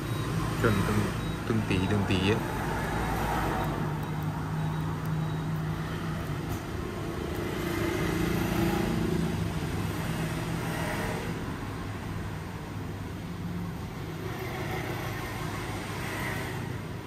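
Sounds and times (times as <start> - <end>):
vehicle engine humming: 0.0 - 10.7.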